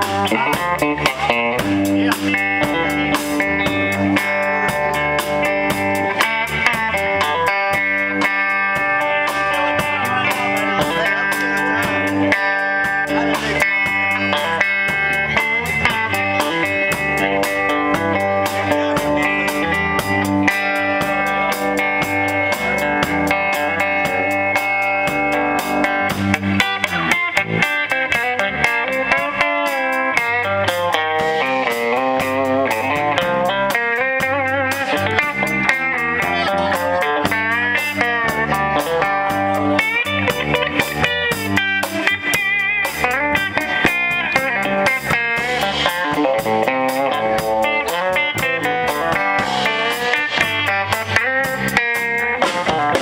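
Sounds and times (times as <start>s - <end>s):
drum kit beat: 0.0s - 53.0s
electric guitars: 0.0s - 53.0s.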